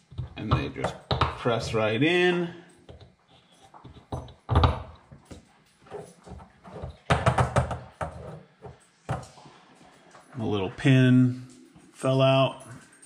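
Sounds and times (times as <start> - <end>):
plastic knocks and clatter: 3.8 - 5.0, 6.3 - 9.3.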